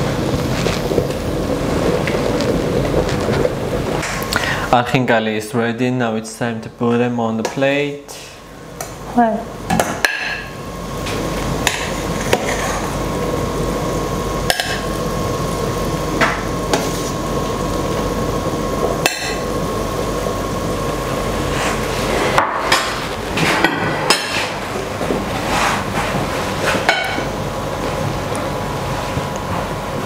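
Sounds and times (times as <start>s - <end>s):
steady hiss: 0.0s - 30.0s.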